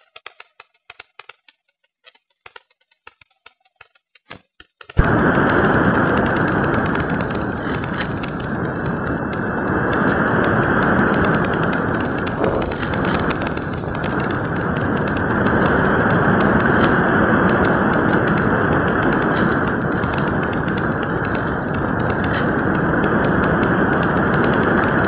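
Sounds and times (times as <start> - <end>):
wind rushing on microphone: 5.0 - 25.0.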